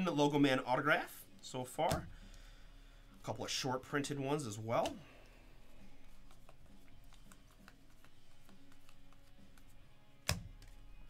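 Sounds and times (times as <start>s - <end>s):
cards sliding ticking: 5.8s - 10.8s.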